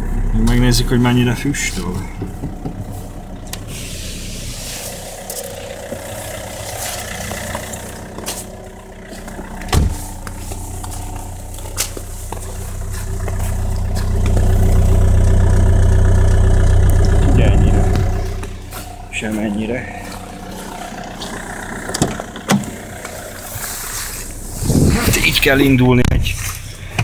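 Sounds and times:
diesel engine idling: 0:00.0 - 0:27.0
loud thump: 0:09.7 - 0:10.1.

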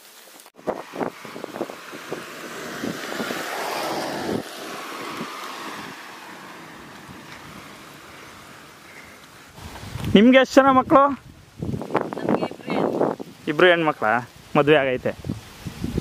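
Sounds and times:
car driving past: 0:00.6 - 0:09.6.

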